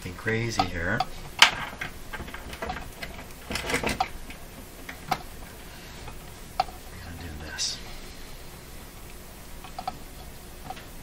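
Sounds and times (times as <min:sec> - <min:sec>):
test leads clicking on workbench: 0:00.5 - 0:05.3.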